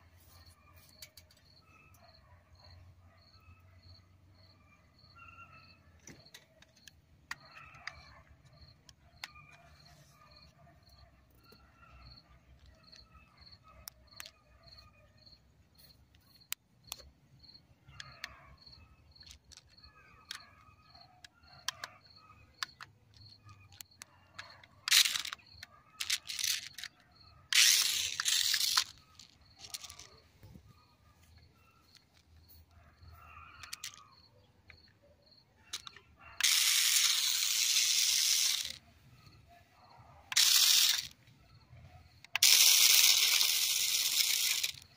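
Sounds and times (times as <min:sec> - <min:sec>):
toy car motor whirring: 0:12.1 - 0:14.4, 0:18.0 - 0:30.7, 0:33.4 - 0:34.2, 0:35.7 - 0:39.2, 0:40.3 - 0:41.3, 0:42.2 - 0:44.9
handling clicks: 0:19.1 - 0:30.6, 0:40.3 - 0:41.2.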